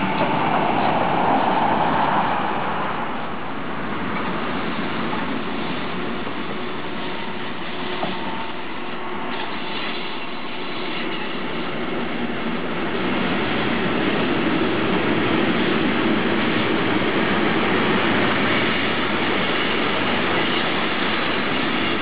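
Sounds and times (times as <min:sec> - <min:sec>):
electric locomotive passing: 0:00.0 - 0:22.0.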